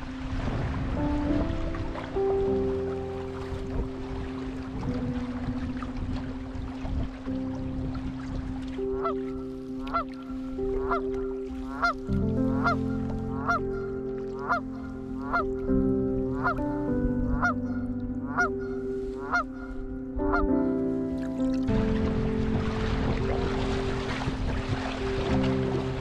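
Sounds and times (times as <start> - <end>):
background music with held notes: 0.0 - 26.0
geese honking: 8.8 - 9.2, 9.8 - 15.5, 16.3 - 16.7, 17.3 - 20.6.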